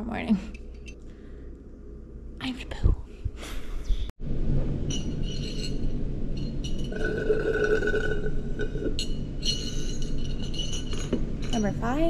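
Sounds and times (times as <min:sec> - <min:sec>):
steady low hum: 0:00.0 - 0:12.0
glass jar clinking: 0:04.8 - 0:11.7.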